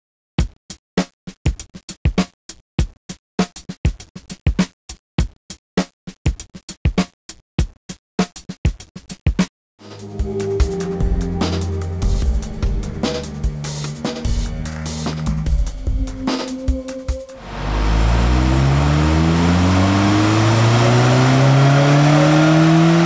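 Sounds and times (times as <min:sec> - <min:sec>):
electronic intro music: 0:09.8 - 0:22.0.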